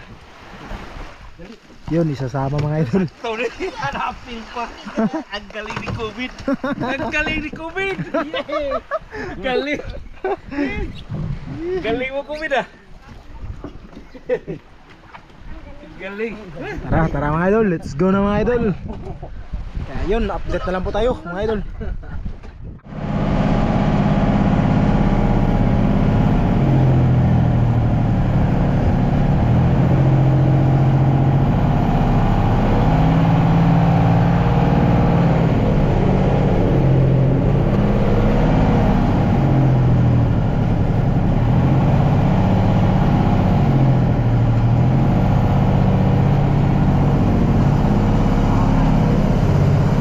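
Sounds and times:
boat engine running: 22.8 - 50.0.

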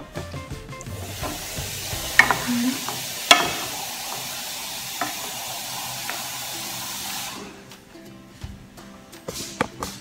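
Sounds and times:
wooden spatula knocking on pan: 0.8 - 6.4
sauce sizzling in a pan: 0.8 - 7.8.

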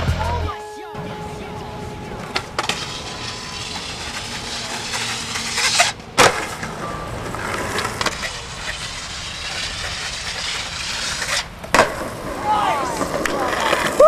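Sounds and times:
skateboard grinding on rail: 1.0 - 14.0
wheels rolling on concrete: 1.0 - 14.0
skateboard landing slap: 5.7 - 6.8, 11.6 - 14.0.

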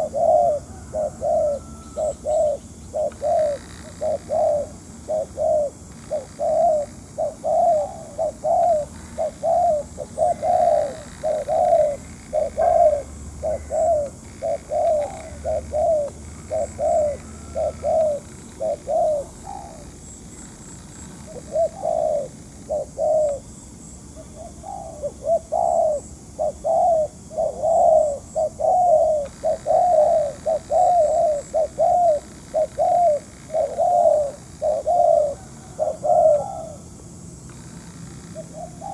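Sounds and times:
dove cooing: 0.0 - 38.9.

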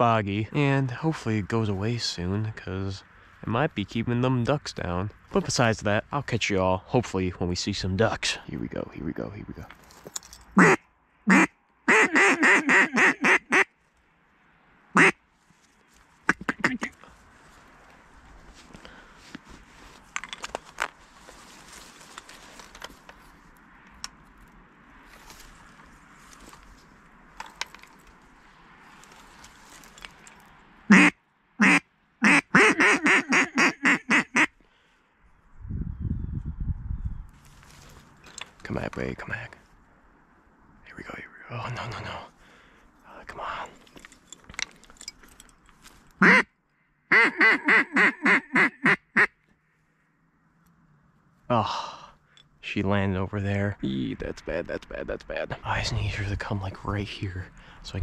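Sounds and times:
duck call quacking: 10.6 - 13.7, 14.9 - 15.2, 16.3 - 17.0, 30.9 - 34.5, 46.2 - 46.5, 47.1 - 49.4.

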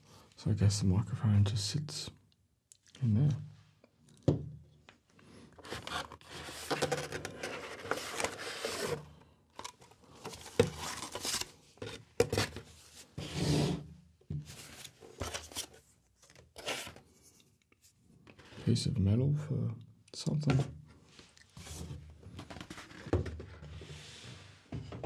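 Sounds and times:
cardboard rustling and scraping: 5.6 - 13.8, 14.4 - 15.8, 16.5 - 17.4, 21.6 - 25.0.

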